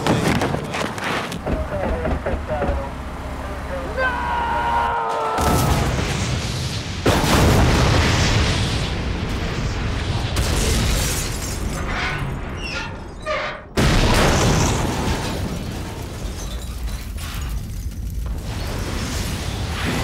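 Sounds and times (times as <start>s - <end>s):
explosion blast rumbling: 5.4s - 11.3s.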